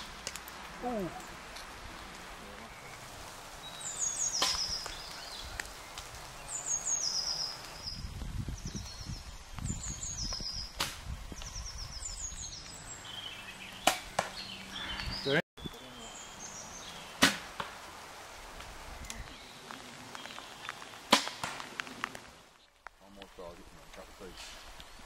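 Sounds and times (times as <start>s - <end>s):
songbird trill: 3.6s - 17.2s.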